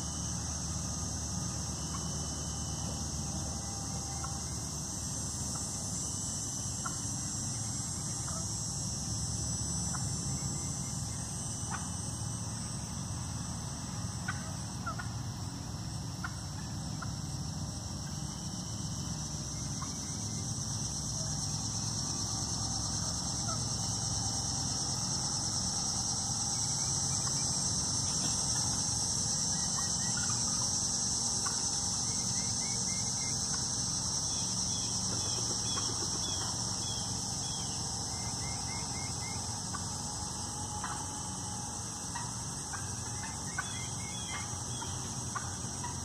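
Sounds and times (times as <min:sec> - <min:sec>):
steady high-pitched hiss: 0:00.0 - 0:46.0
wild turkey clucks: 0:08.2 - 0:08.5, 0:14.2 - 0:15.2, 0:29.4 - 0:30.8, 0:35.0 - 0:36.8, 0:37.6 - 0:41.1, 0:42.0 - 0:46.0.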